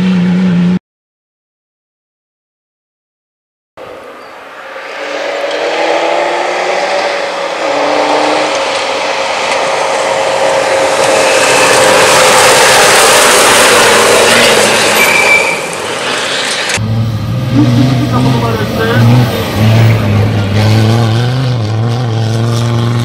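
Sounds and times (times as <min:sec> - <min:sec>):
rally car engine running hard: 0:00.0 - 0:00.8, 0:15.7 - 0:23.0.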